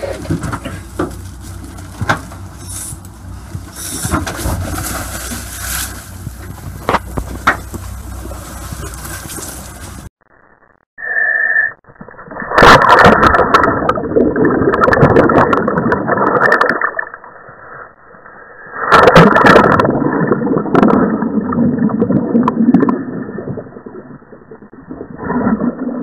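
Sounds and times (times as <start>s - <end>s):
crackling bubbles: 0.0s - 26.0s
underwater rushing water: 3.0s - 10.1s, 12.3s - 17.4s.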